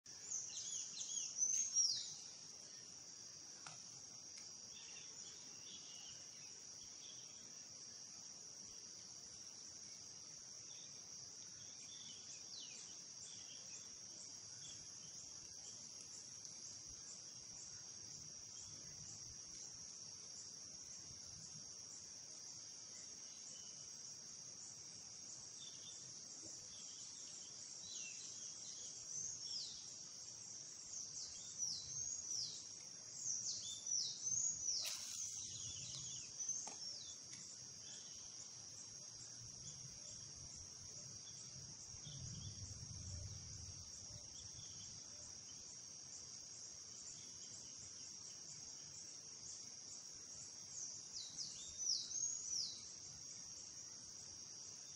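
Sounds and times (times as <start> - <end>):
high-pitched insect chorus: 0.0 - 54.9
quick falling bird chirps: 34.6 - 36.2.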